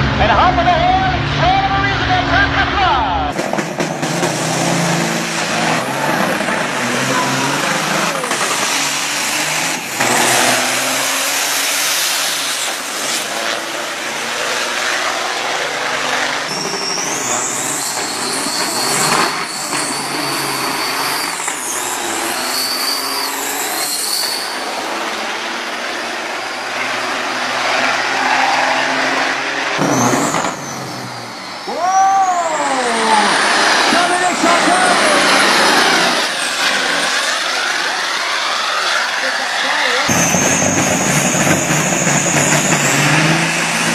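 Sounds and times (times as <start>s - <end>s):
diesel truck engines revving: 0.0s - 43.9s
gliding whistles: 16.5s - 24.8s.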